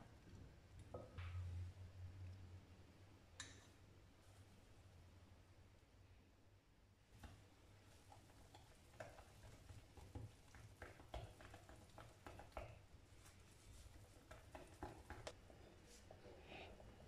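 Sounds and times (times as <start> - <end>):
whisk stirring batter in bowl: 7.2 - 17.0.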